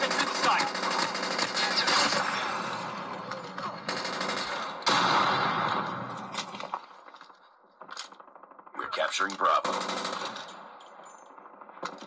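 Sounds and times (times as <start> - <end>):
video game gunfire bursts: 0.0 - 3.1, 3.8 - 6.1, 8.4 - 10.7.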